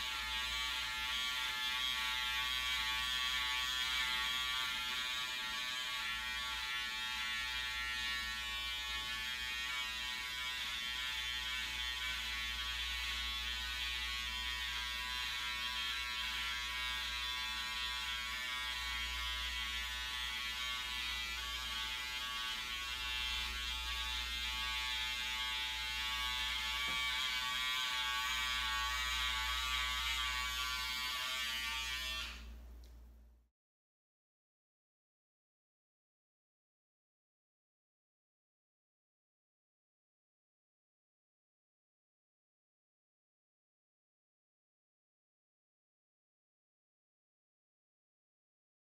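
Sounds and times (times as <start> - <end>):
hair clippers buzzing: 0.0 - 32.5.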